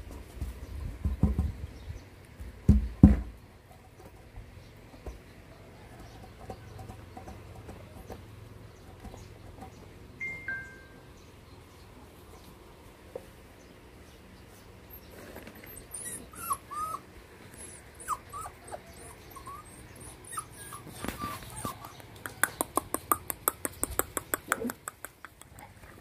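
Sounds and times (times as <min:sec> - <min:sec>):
puppies whimpering and whining: 0:14.7 - 0:22.3.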